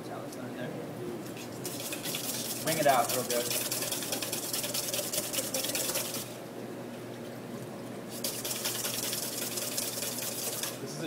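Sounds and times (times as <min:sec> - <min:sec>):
whisk beating in metal bowl: 0:01.5 - 0:06.4, 0:08.1 - 0:11.0.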